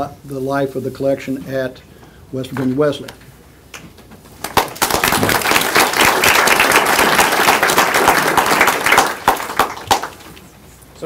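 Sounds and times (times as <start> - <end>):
audience applauding: 4.4 - 10.5.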